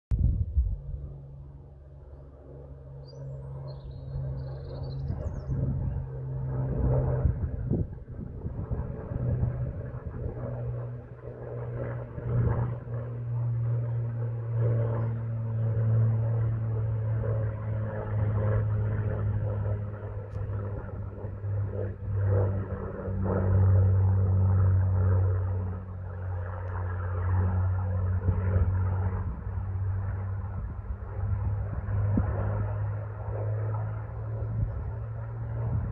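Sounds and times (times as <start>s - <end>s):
distant propeller plane droning: 0.1s - 35.9s
small birds chirping: 3.0s - 6.1s.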